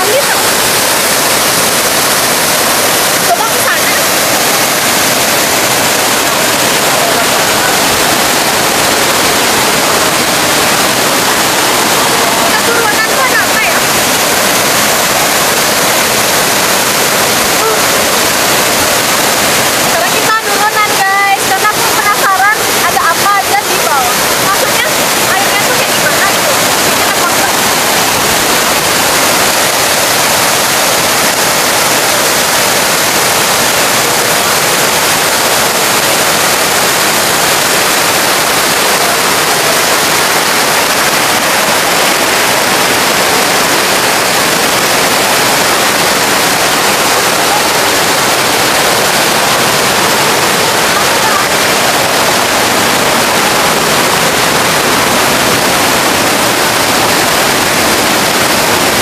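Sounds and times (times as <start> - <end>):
stream cascading over rocks: 0.0 - 59.0
waterfall rushing: 0.0 - 59.0.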